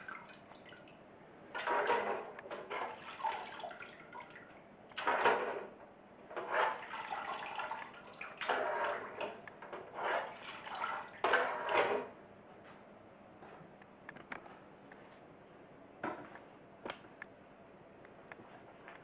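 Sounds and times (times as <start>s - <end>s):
liquid sloshing and splashing: 0.0s - 5.6s, 6.4s - 12.0s.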